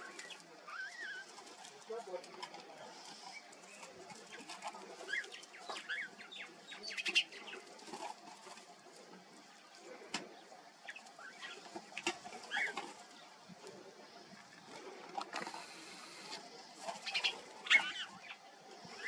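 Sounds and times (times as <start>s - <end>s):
gravel and twigs scratching: 0.0s - 19.0s
bird chirps: 12.4s - 13.3s, 17.0s - 19.0s.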